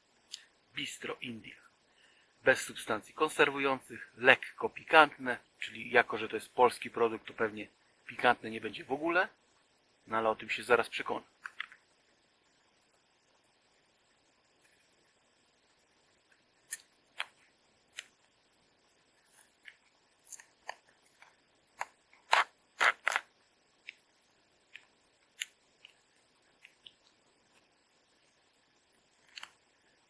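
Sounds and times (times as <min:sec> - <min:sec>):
plastic film lid peeling: 0:19.6 - 0:23.3.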